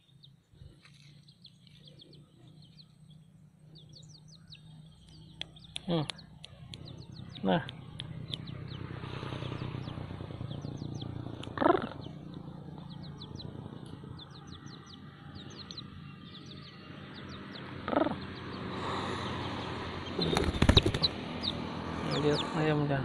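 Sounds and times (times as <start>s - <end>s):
chick peeping: 3.8s - 19.3s, 20.0s - 22.5s.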